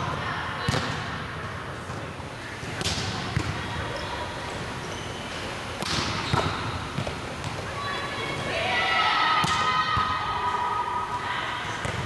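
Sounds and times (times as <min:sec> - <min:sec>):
volleyball smacks in gym: 0:02.8 - 0:03.6, 0:05.8 - 0:07.6.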